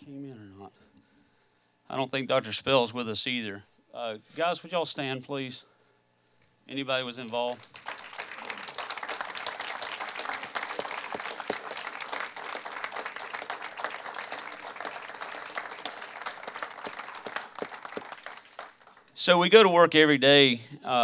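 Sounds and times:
audience applauding: 0:07.3 - 0:19.1.

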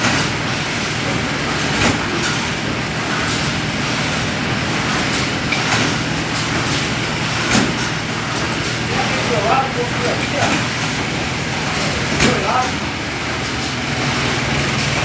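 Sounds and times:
bagging machine running: 0:00.0 - 0:15.0.

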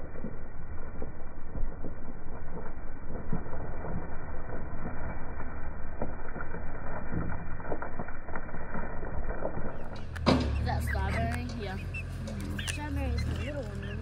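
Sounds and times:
dirt and stones spilling: 0:00.0 - 0:13.9
diesel engine running: 0:09.9 - 0:14.0.

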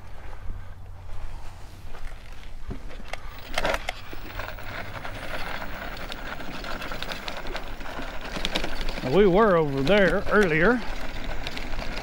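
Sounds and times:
scooter rolling over rough ground: 0:01.9 - 0:12.0.

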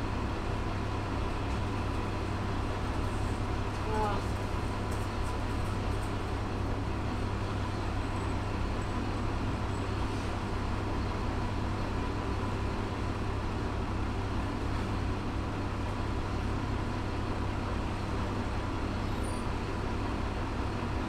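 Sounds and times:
diesel engine idling: 0:05.8 - 0:21.0.

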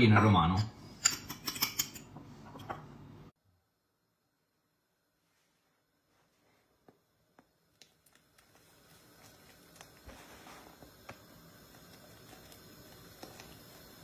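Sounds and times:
water bubbling in a pot: 0:07.9 - 0:14.0.

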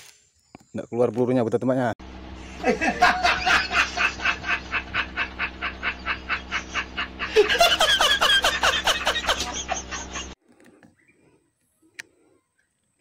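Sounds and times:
man laughing hard: 0:02.5 - 0:10.4.

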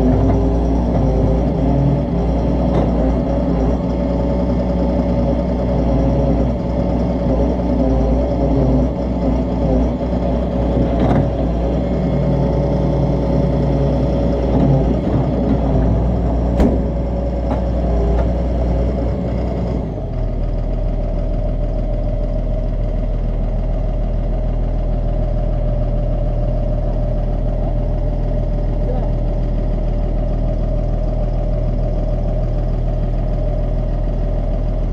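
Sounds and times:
excavator diesel engine running: 0:00.0 - 0:34.9
sharp knocks: 0:16.5 - 0:18.4.

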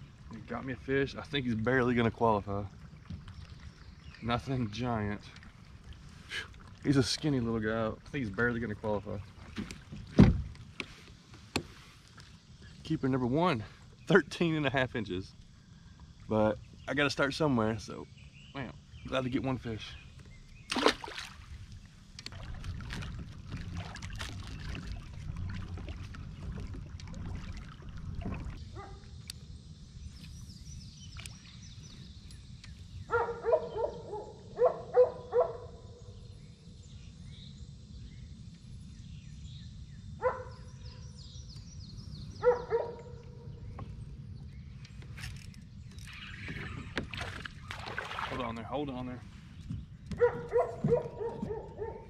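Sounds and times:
water sloshing and splashing: 0:00.0 - 0:12.6, 0:20.6 - 0:29.2, 0:45.0 - 0:48.8
high insect hiss: 0:28.5 - 0:33.5.

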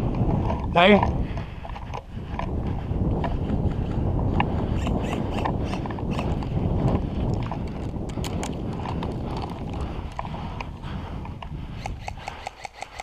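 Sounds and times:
wind rumble: 0:00.0 - 0:13.0.

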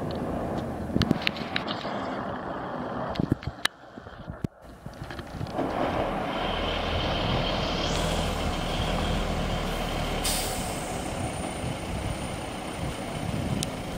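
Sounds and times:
diesel truck engine passing: 0:01.7 - 0:03.9, 0:05.5 - 0:13.9
sudden hiss: 0:07.1 - 0:11.6.

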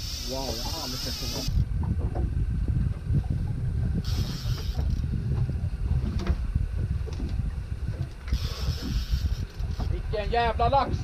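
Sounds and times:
fishing reel ticking: 0:00.0 - 0:01.6, 0:04.0 - 0:05.0, 0:08.2 - 0:10.0
constant low rumble: 0:00.0 - 0:11.0.

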